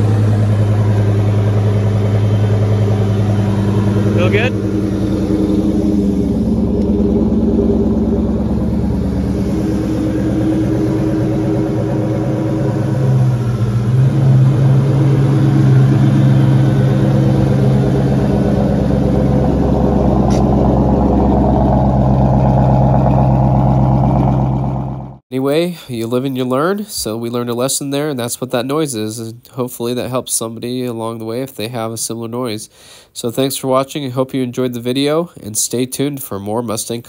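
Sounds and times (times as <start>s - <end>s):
car engine idling: 0.0s - 25.2s.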